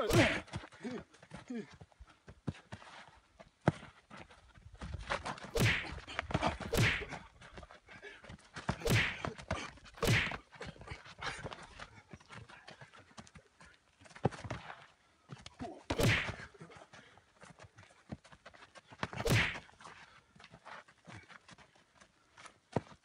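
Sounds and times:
sharp foot scrapes: 19.2 - 19.6.

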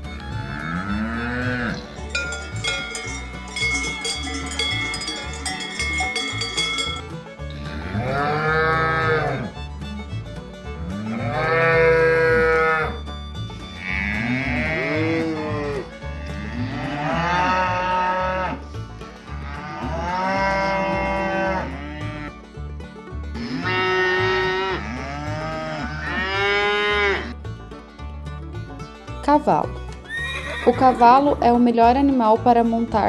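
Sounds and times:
cattle mooing: 0.3 - 2.4, 7.6 - 9.6, 10.9 - 13.0, 13.7 - 18.7, 19.3 - 22.3, 23.4 - 27.4.

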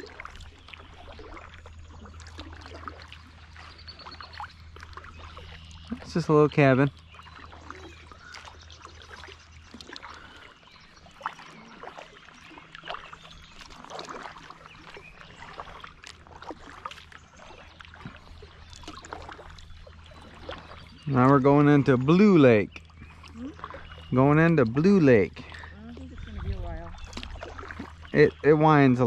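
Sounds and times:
kayak paddle strokes: 0.0 - 6.3, 6.9 - 29.0
water dripping off paddle: 0.0 - 29.0
low hum: 14.7 - 29.0.

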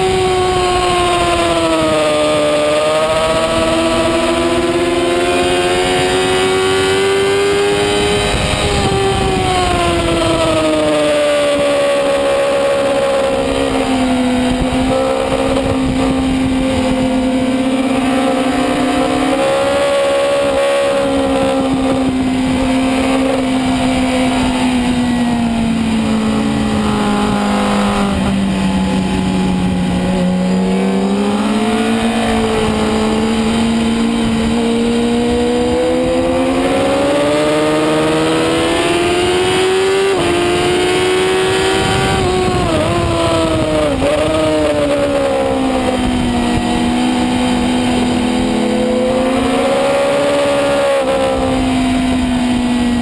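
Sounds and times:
motorcycle engine running hard: 0.0 - 53.0.

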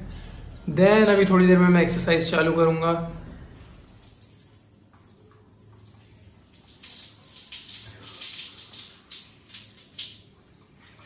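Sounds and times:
shower spray splashing on body: 5.7 - 11.0.

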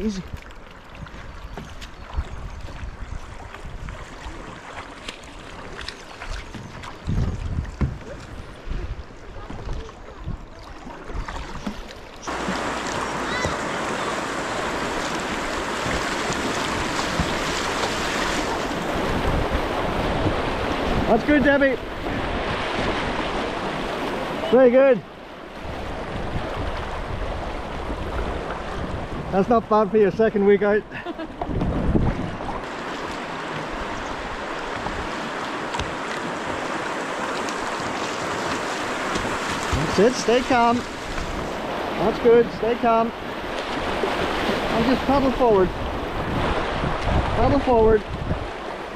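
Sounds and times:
wind buffeting microphone: 0.0 - 4.8, 5.4 - 24.4, 25.6 - 29.8, 31.3 - 42.6, 43.2 - 48.9
paddle splashes: 0.0 - 48.9
river water rushing: 8.3 - 29.5, 31.9 - 48.9.

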